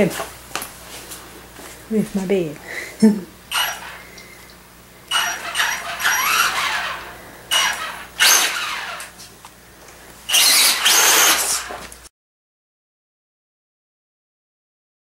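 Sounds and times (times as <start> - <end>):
toy car electric motor whining: 3.5 - 4.1, 5.1 - 9.2, 10.3 - 11.9.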